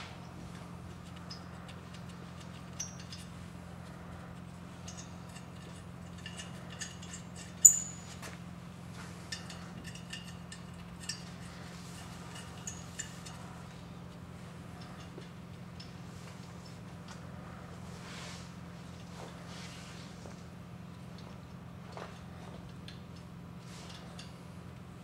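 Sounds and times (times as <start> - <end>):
low hum: 0.0 - 25.0
metal nuts clicking and clinking: 0.2 - 8.3, 9.3 - 17.3.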